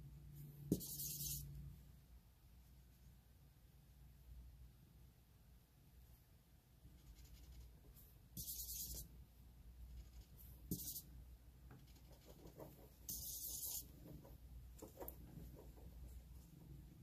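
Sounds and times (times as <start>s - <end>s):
marker scratching on paper: 0.7s - 1.6s, 7.0s - 9.2s, 9.9s - 16.0s.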